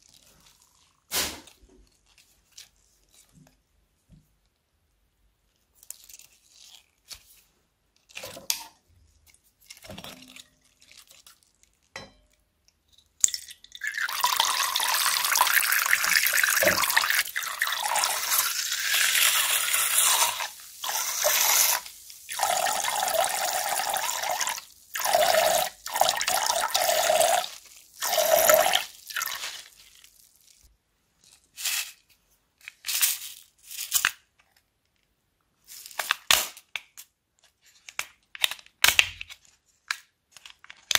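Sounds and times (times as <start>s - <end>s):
liquid streaming into a bowl: 13.7s - 29.8s
plastic bag crinkling: 27.3s - 32.0s.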